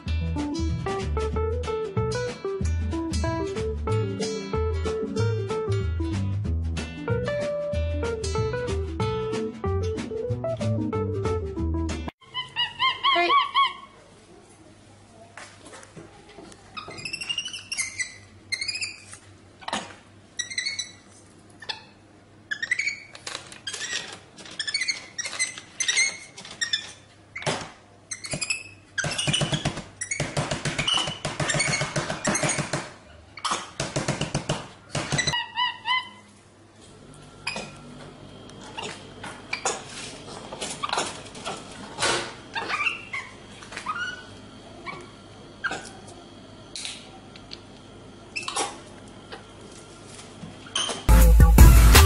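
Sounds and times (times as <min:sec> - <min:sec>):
monkey squeaking: 0:12.2 - 0:14.0, 0:16.8 - 0:19.8, 0:20.4 - 0:27.5, 0:28.1 - 0:32.8, 0:35.1 - 0:36.3, 0:42.6 - 0:45.0.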